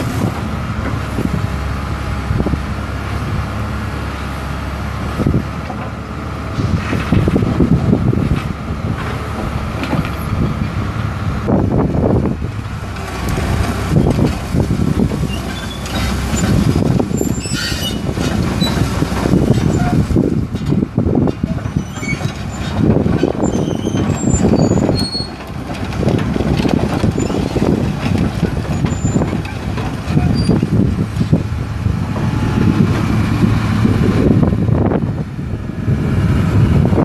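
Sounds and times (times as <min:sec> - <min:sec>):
diesel engine running: 0:00.0 - 0:37.0
wind buffeting microphone: 0:00.0 - 0:37.0.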